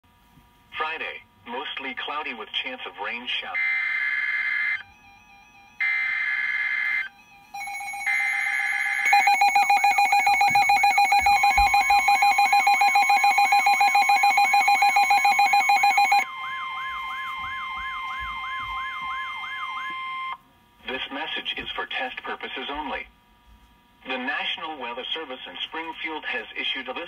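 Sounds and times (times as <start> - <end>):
pulsing alarm tone: 3.5 - 20.4
sweeping siren: 3.5 - 20.4.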